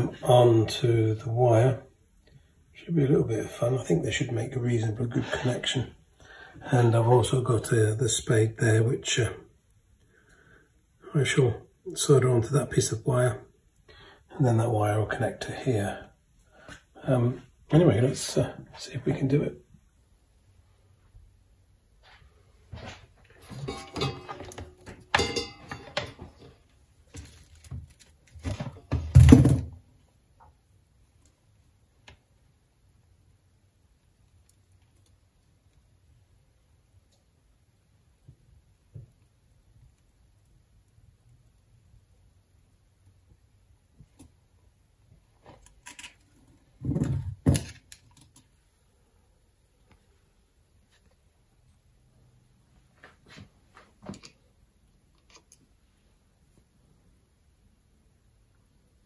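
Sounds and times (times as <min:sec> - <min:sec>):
knocks and clunks on wooden workbench: 0:46.8 - 0:47.8.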